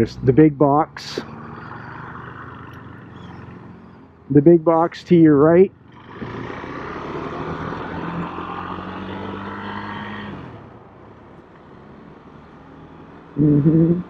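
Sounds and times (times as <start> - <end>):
man's voice: 0.0 - 1.2, 4.3 - 5.7
vehicle engine and road noise: 0.0 - 14.0.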